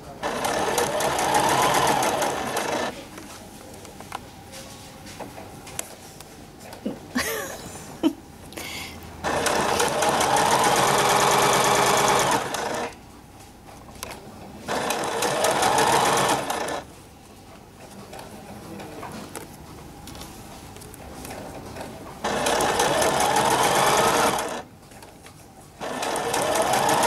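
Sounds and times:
sewing machine stitching: 0.2 - 2.9, 9.2 - 13.0, 14.7 - 16.8, 22.2 - 24.6, 25.8 - 27.0.

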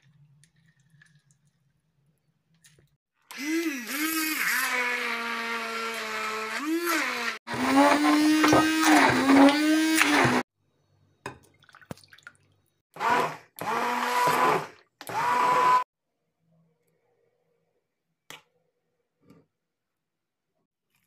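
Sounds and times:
immersion blender motor whine: 3.3 - 10.5, 13.0 - 15.9.

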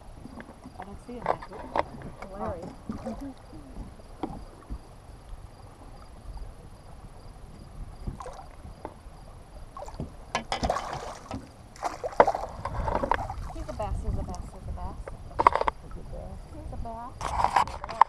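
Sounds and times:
water lapping against boat: 0.0 - 18.0
soft knocks: 9.9 - 11.5
fish thrashing splash: 10.6 - 13.8.

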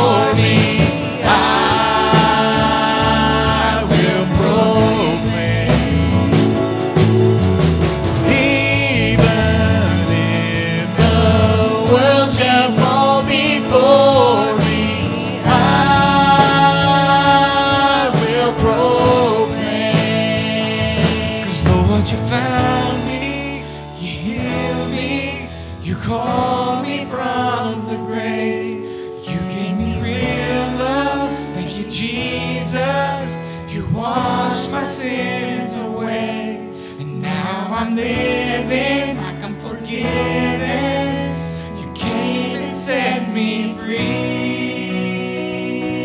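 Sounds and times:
worship band playing slow song: 0.0 - 46.0
woman singing lead vocal: 8.2 - 23.3, 26.2 - 46.0.

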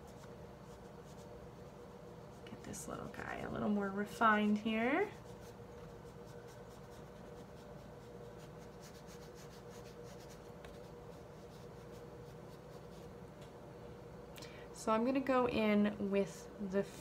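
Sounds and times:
brush dabbing on paper: 0.0 - 13.2
faint hum: 0.0 - 17.0.

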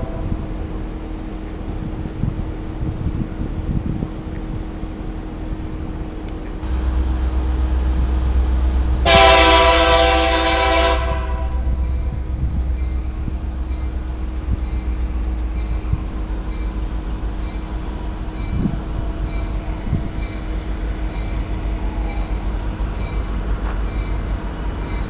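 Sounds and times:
diesel train rumble: 0.0 - 25.0
locomotive air horn blast: 6.6 - 12.2.

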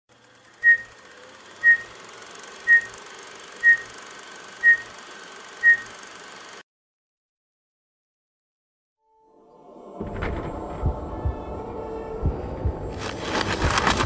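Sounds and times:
short high beeps: 3.6 - 3.9.

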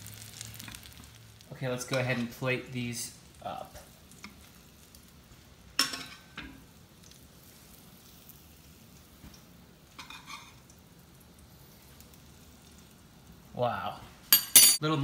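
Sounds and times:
spoon clinking on ceramic platter: 14.4 - 14.8.

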